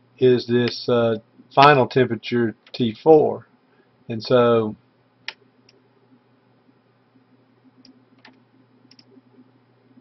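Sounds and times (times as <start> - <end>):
low steady hum: 0.0 - 10.0
computer mouse clicks: 7.8 - 9.2.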